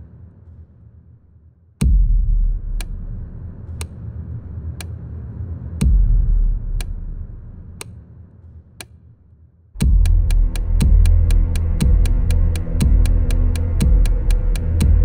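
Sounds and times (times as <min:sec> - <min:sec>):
deep bass drone: 0:01.8 - 0:07.8, 0:09.8 - 0:15.0
sharp ticking: 0:09.8 - 0:15.0.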